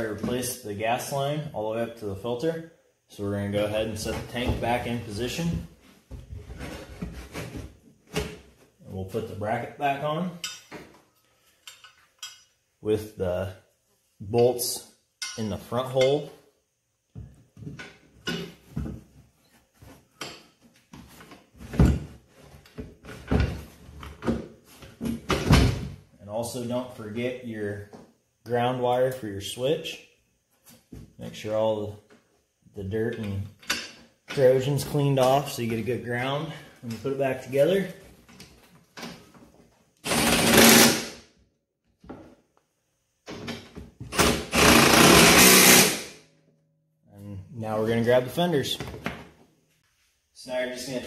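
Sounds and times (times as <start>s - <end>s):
impact driver running: 40.0s - 41.2s, 44.2s - 46.1s.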